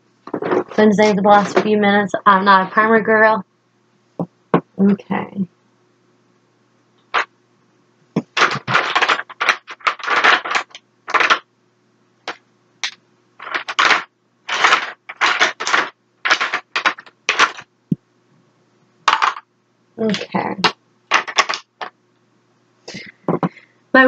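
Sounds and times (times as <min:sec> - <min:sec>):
plastic cases clattering in drawer: 0:08.2 - 0:11.4, 0:12.8 - 0:17.6, 0:21.1 - 0:21.9.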